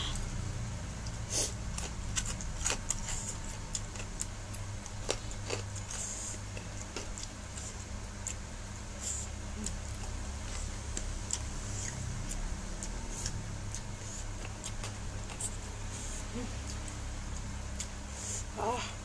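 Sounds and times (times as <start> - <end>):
chewing and mouth noises: 1.0 - 18.4.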